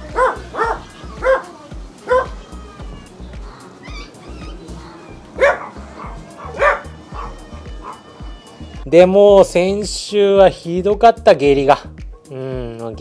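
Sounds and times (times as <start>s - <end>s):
background music: 0.0s - 13.0s
dog barking in high yaps: 0.1s - 2.4s, 3.8s - 4.7s, 5.4s - 8.0s.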